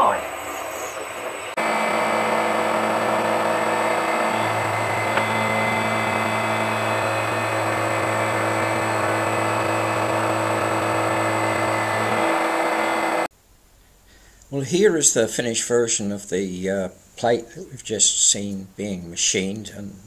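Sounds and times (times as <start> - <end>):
milling machine motor hum: 0.9 - 13.3
end mill cutting metal: 1.5 - 13.3.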